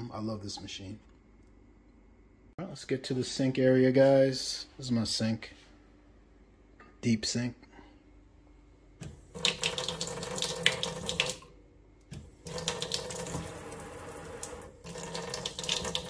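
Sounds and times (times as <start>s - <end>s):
faucet water running into sink: 9.3s - 11.5s, 12.2s - 16.0s.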